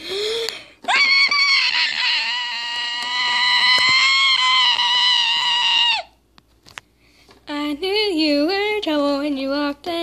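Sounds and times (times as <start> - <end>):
girl screaming: 0.8 - 6.2.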